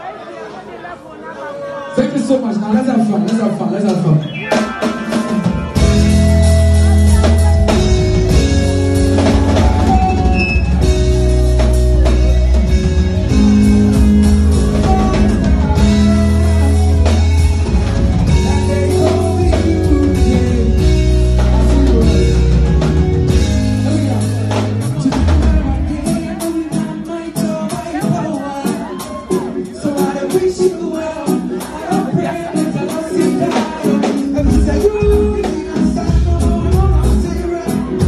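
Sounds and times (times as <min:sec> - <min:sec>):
steady drum beat: 0:03.9 - 0:38.0
loud music with heavy bass: 0:04.2 - 0:27.1.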